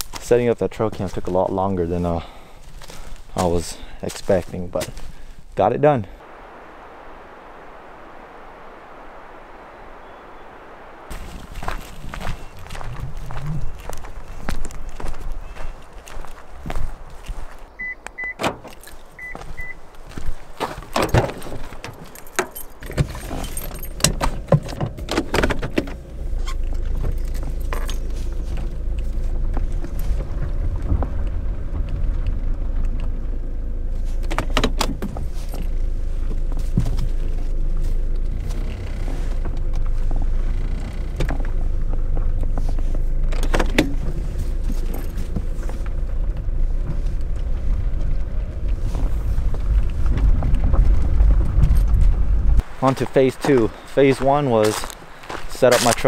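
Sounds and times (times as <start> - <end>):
car engine rumbling: 0.0 - 56.0
keys jangling: 21.0 - 24.5.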